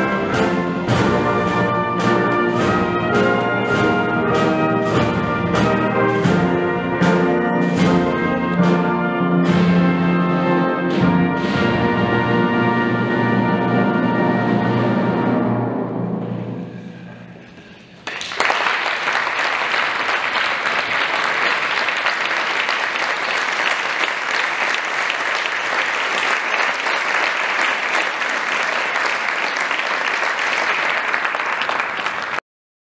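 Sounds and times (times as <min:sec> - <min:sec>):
audience applause: 0:18.0 - 0:32.4.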